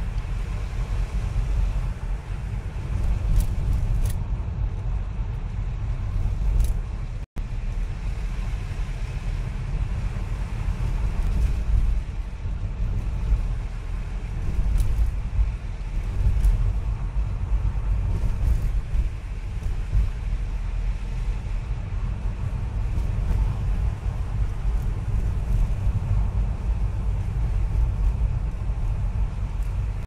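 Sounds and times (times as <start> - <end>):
car engine and tyre rumble: 0.0 - 30.0.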